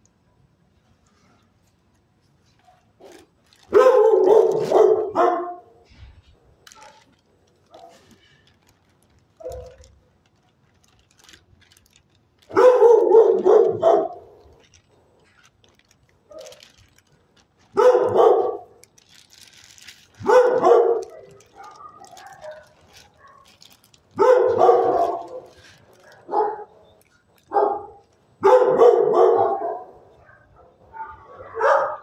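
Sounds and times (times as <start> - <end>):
dog barking: 3.7 - 5.7, 6.7 - 7.1, 7.7 - 8.0, 9.4 - 9.9, 12.5 - 14.3, 17.7 - 18.7, 20.2 - 23.6, 24.2 - 26.8, 27.5 - 32.0.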